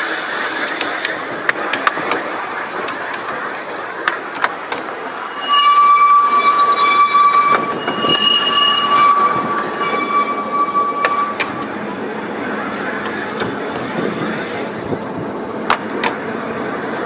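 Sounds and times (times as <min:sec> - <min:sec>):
sharp clicks from rails: 0:00.0 - 0:05.3, 0:10.9 - 0:17.0
tram rumble: 0:00.0 - 0:17.0
tram wheels squealing: 0:00.0 - 0:17.0.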